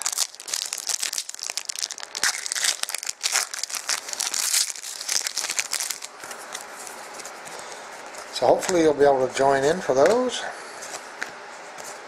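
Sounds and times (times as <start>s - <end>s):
wrapper crinkling and tearing: 0.0s - 7.2s.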